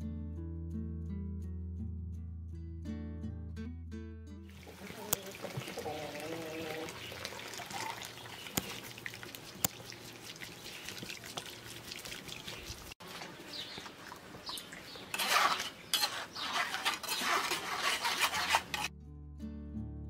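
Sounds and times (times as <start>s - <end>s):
sauce pouring through strainer: 4.5s - 13.0s
liquid trickling and splashing: 4.5s - 17.8s.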